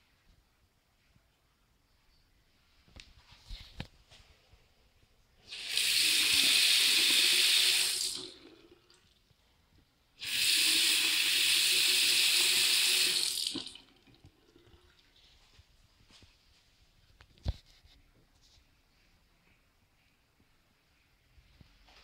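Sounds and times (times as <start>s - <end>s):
faucet water running into sink: 5.5s - 8.9s, 10.2s - 15.0s.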